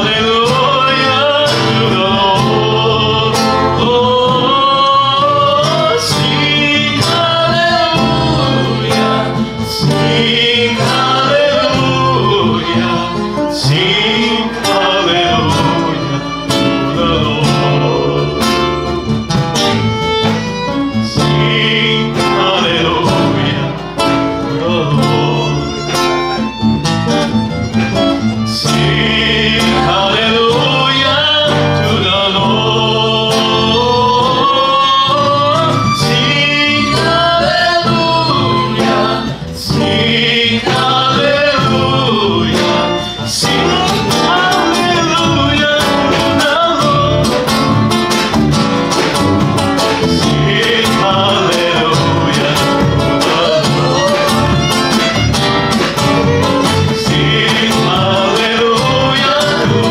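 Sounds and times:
strummed acoustic guitar: 0.0s - 59.9s
violin: 0.0s - 59.9s.

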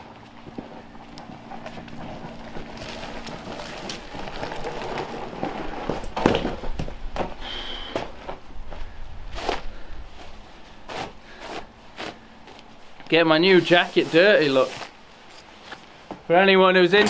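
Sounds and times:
footsteps crunching through snow: 8.2s - 16.0s.

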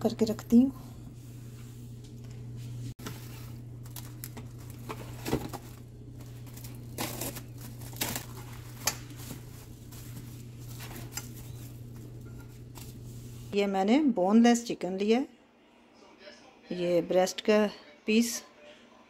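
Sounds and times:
steady low hum: 0.0s - 13.6s
cling film crinkling: 3.0s - 13.1s.

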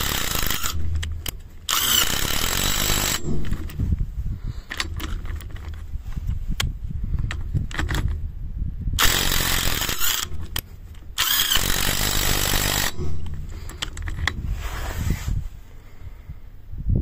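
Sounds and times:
impact wrench hammering: 0.0s - 3.8s, 11.2s - 13.9s.

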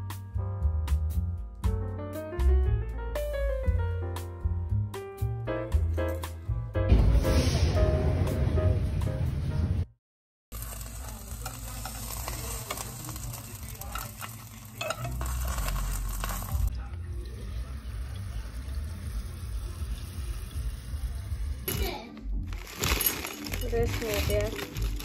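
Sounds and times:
spoon scraping metal pot: 11.4s - 16.7s.

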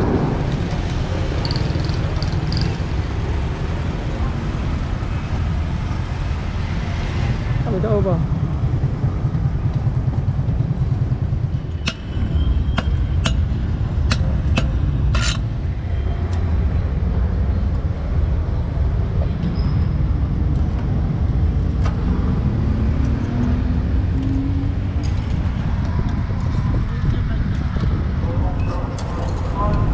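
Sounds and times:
road traffic rumble: 0.0s - 29.9s
sharp clicks and knocks: 0.5s - 2.8s.

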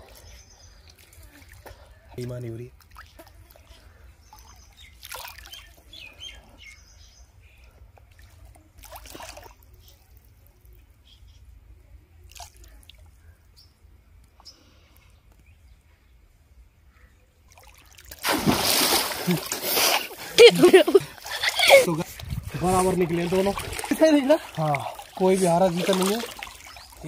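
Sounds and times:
small splashes and drips: 0.1s - 2.0s, 2.7s - 5.9s, 7.6s - 10.6s, 12.2s - 13.2s, 17.5s - 21.8s, 23.1s - 27.0s
water lapping: 17.5s - 27.0s.

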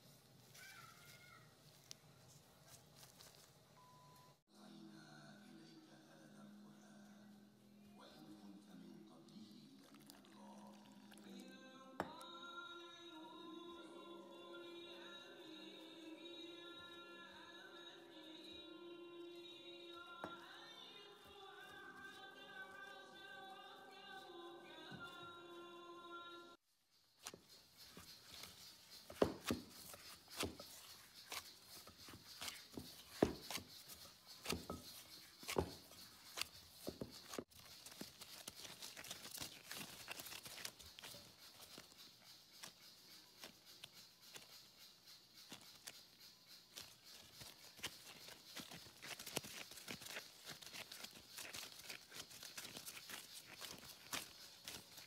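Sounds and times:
hands kneading dough: 19.9s - 25.6s, 27.1s - 55.0s.

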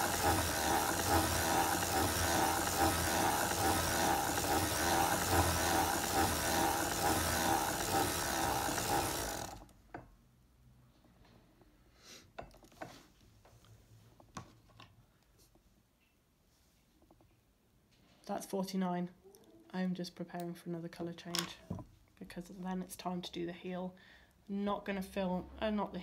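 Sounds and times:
sock machine needles clattering: 0.0s - 9.7s.

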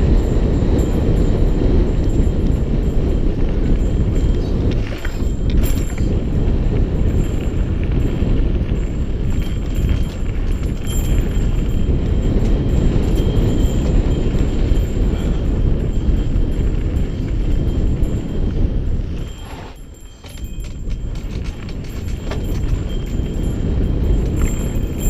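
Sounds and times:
bike rattling over gravel: 0.0s - 25.0s
wind on microphone: 0.0s - 25.0s
tyres on dirt: 19.0s - 23.4s.

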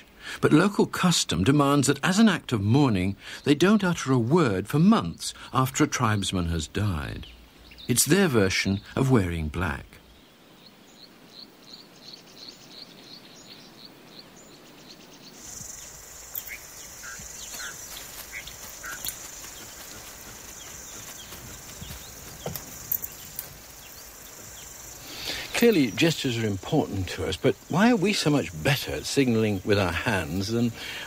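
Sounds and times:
short bird calls: 10.0s - 26.0s
high insect drone: 15.2s - 31.0s
faint clicks: 15.6s - 24.0s.

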